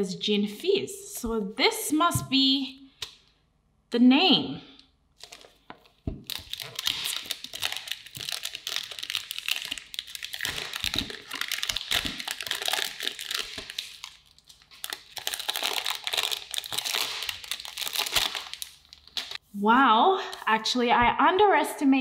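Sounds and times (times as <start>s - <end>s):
plastic film crinkling: 5.2s - 19.4s.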